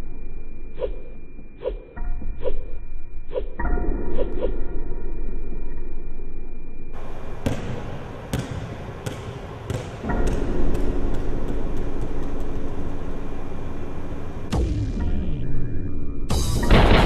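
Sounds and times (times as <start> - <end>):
basketball bouncing on wooden floor: 7.4 - 12.5.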